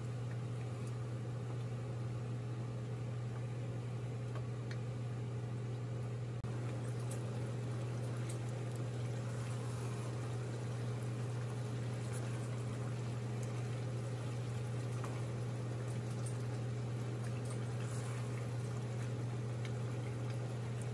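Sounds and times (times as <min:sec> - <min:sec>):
steady low hum: 0:00.0 - 0:20.9
curry bubbling in a pot: 0:06.4 - 0:20.9.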